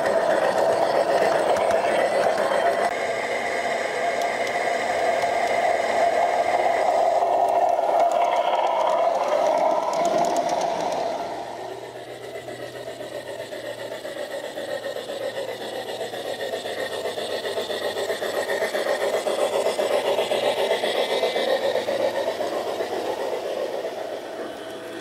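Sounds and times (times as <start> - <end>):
model train whirring on rails: 0.0 - 25.0.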